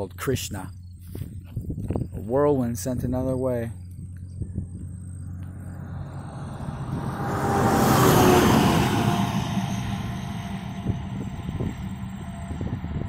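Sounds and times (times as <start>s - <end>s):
vehicle passing: 4.0s - 13.0s.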